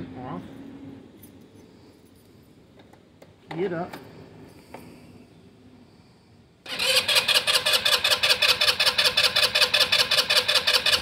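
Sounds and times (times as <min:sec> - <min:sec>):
electric starter cranking engine: 0:06.6 - 0:11.0.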